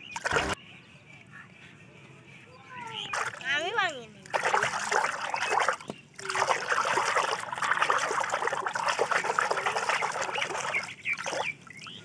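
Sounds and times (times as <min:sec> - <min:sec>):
hands splashing in water: 0:00.0 - 0:00.6, 0:03.1 - 0:03.5, 0:04.2 - 0:11.5.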